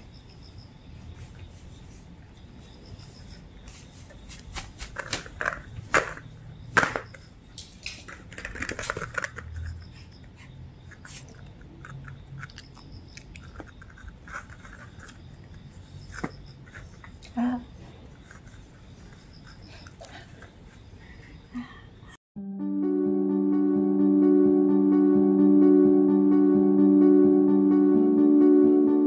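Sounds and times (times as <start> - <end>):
plastic pieces clicking and knocking: 5.0 - 6.2, 6.8 - 9.7.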